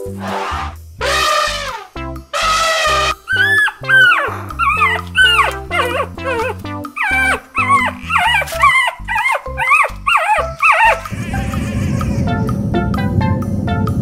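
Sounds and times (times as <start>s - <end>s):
background music: 0.0s - 14.0s
puppy whining and yipping: 2.4s - 12.2s
low steady rumble: 7.4s - 14.0s.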